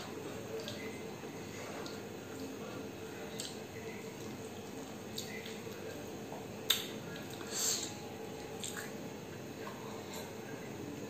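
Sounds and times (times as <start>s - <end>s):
chewing: 0.5s - 3.6s, 4.2s - 6.1s, 8.6s - 9.0s.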